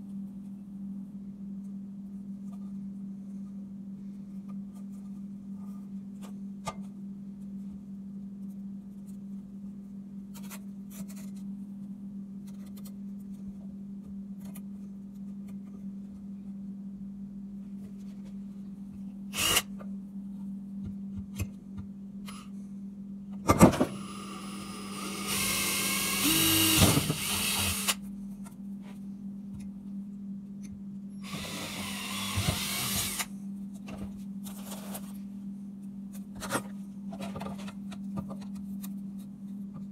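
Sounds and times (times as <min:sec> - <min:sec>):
steady low hum: 0:00.0 - 0:39.9
cordless drill boring pipe: 0:19.4 - 0:19.6, 0:23.9 - 0:28.0, 0:31.2 - 0:33.3.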